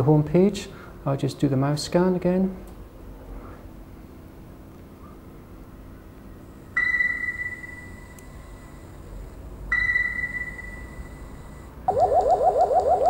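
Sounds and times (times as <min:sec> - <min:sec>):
high electronic beep: 0:11.9 - 0:13.0.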